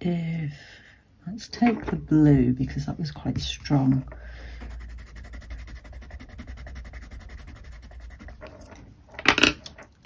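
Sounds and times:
pencil scribbling on paper: 4.5 - 8.8.

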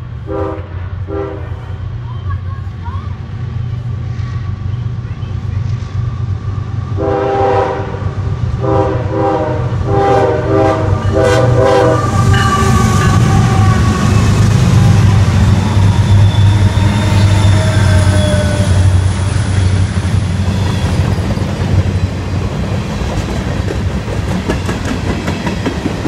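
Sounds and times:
locomotive engine rumble: 0.0 - 26.0
rail noise: 0.0 - 26.0
train horn blasts: 0.2 - 1.8, 7.0 - 19.0.

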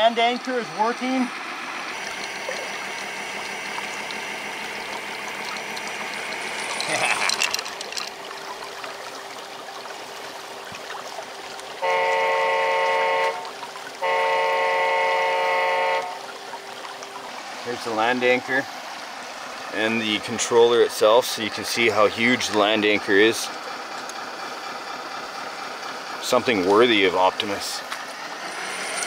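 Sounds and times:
electric winch whining: 0.3 - 8.2, 28.0 - 29.0.

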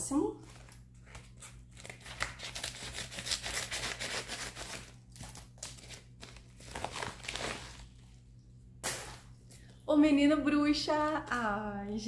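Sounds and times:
paper envelope crinkling: 0.4 - 8.1.

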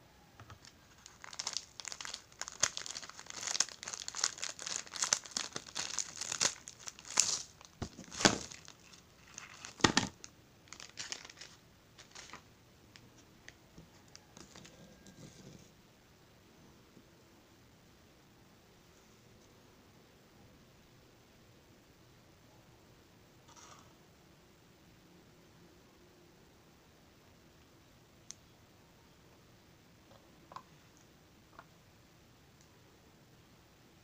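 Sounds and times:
plastic bag crinkling: 0.6 - 12.5.

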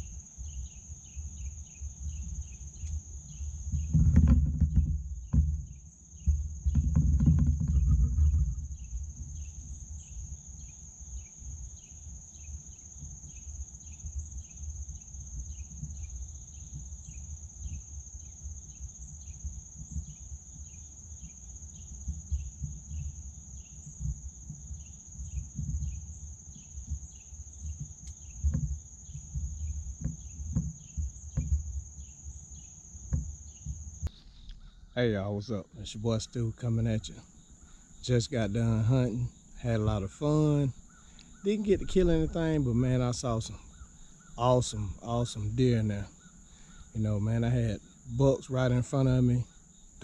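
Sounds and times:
insect chirping: 0.0 - 50.0
insect high-pitched trill: 0.0 - 50.0
small knocks: 3.7 - 8.8, 26.9 - 33.9
low rumble: 41.5 - 43.6.

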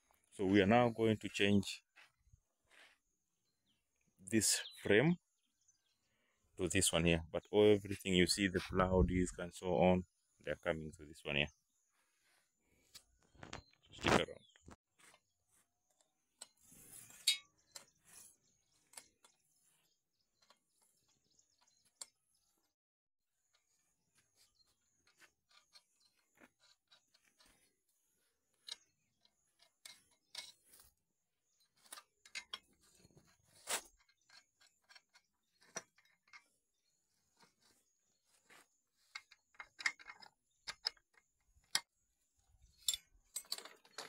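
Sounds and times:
metal tools clinking: 17.1 - 18.0, 28.6 - 30.8, 38.5 - 41.8, 42.6 - 44.0.

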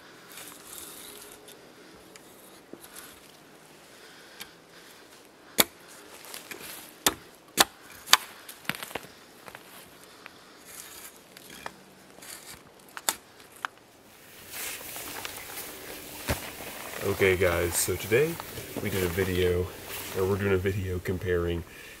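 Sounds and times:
hatchet chopping dry wood: 5.6 - 5.8, 6.5 - 8.3.

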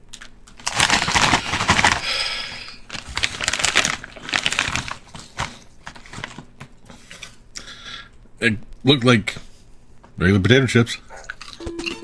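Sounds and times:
foil chip bag crinkling: 0.1 - 7.3
chips crunching while chewed: 11.2 - 12.0.

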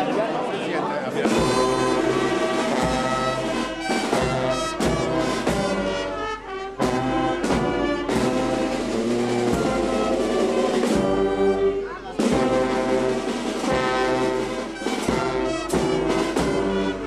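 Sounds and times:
trombones: 1.2 - 17.0
trumpets: 1.2 - 17.0
tuba: 1.2 - 17.0
saxophones: 1.3 - 17.0.

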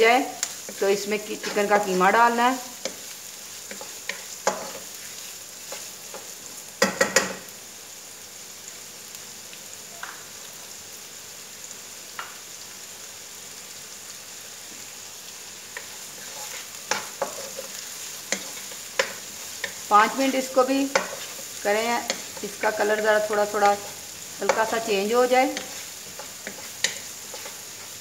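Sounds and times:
onion sizzling in hot oil: 0.0 - 28.0
wooden spatula scraping a pan: 0.4 - 6.4, 15.8 - 28.0.

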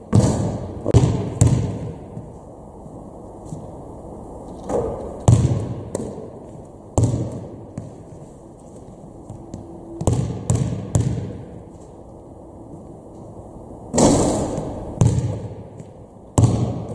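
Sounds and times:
basketball bouncing on gym floor: 0.1 - 2.3, 4.7 - 6.2, 7.0 - 8.1, 9.3 - 11.6, 14.0 - 16.9.

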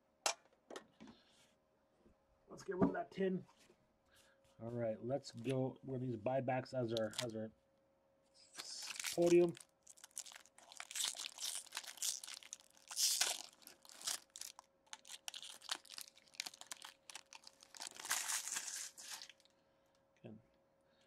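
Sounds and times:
faint steady hum: 0.0 - 21.0
foil wrapper crinkling and tearing: 7.0 - 7.3, 8.6 - 19.5.

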